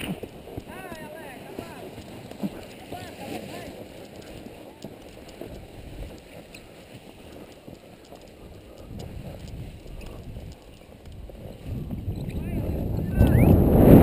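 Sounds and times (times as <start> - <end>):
gear clicks and rustles: 0.0 - 13.9
wind on microphone: 8.3 - 14.0.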